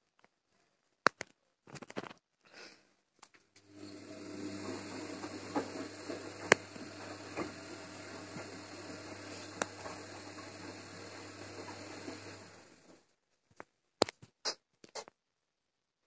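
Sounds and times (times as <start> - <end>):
laundry tumbling: 3.6 - 13.0
washing machine motor hum: 3.6 - 13.1.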